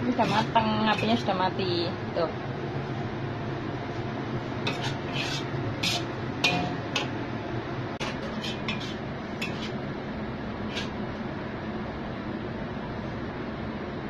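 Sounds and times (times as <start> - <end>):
spatula scraping a wok: 0.0 - 1.5, 4.6 - 7.1, 8.0 - 9.8, 10.6 - 11.0
low background hum: 0.0 - 14.0.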